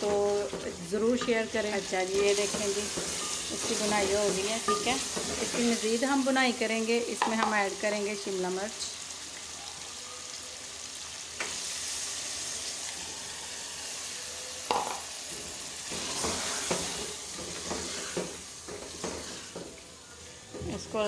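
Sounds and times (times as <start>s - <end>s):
food sizzling in a pot: 0.0s - 21.0s
wooden spoon knocking pot: 7.2s - 7.6s, 14.7s - 15.0s.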